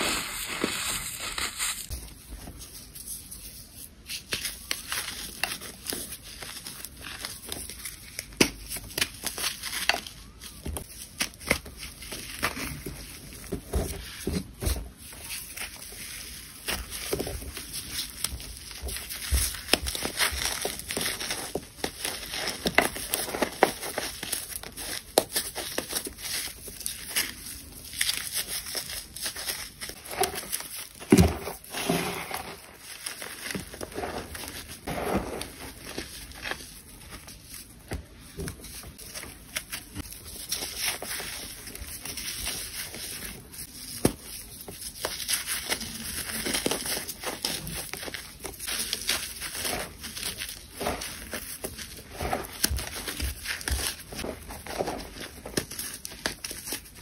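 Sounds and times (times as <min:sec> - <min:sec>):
crunching chunks by hand: 0:16.6 - 0:57.0.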